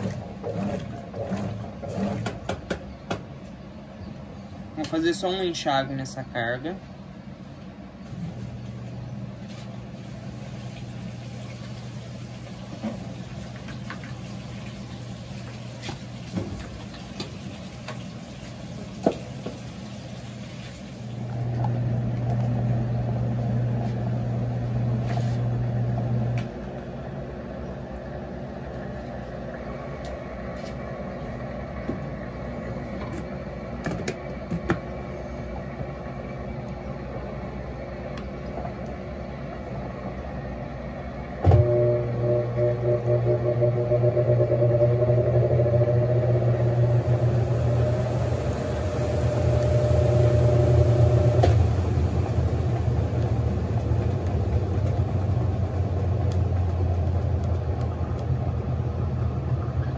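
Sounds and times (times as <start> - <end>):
washing machine basket spinning: 0.0 - 2.7, 9.9 - 30.5, 35.8 - 59.9
drain pump humming: 0.0 - 59.9
motor starting with a thump: 41.4 - 55.4.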